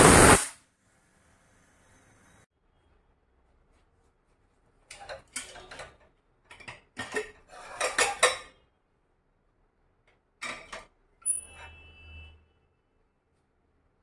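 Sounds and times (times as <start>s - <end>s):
utensils and dishes clattering: 4.9s - 8.6s, 10.4s - 11.5s.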